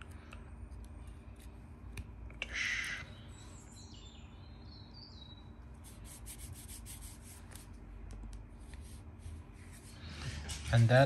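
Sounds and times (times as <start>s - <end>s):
low steady hum: 0.0s - 11.0s
fingers rubbing phone: 5.8s - 7.7s.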